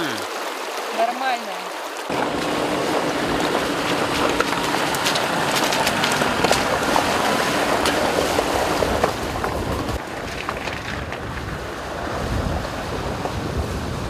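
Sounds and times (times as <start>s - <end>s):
vehicle splashing through water: 2.0s - 14.0s
stones knocking under tyres: 2.1s - 11.6s
wind on microphone: 2.1s - 14.0s.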